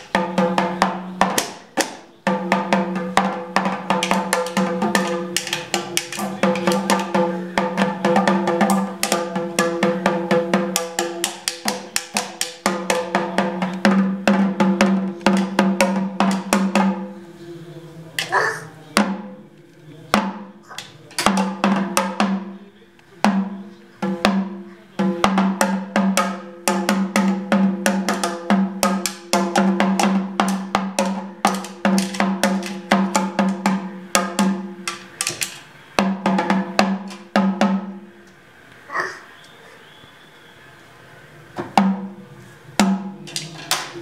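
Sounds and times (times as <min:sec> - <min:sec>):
toy drum being hit: 0:00.0 - 0:16.8, 0:25.1 - 0:35.6, 0:42.8 - 0:44.0.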